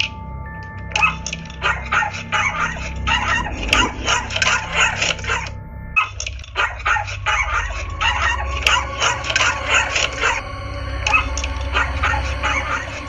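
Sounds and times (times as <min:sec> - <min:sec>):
dog barking rapidly: 0:01.0 - 0:05.5, 0:06.6 - 0:10.4, 0:11.1 - 0:12.9.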